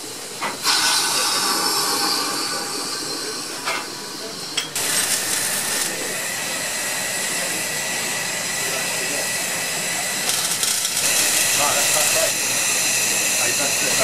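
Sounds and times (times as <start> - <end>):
steam locomotive hissing: 0.0 - 14.0.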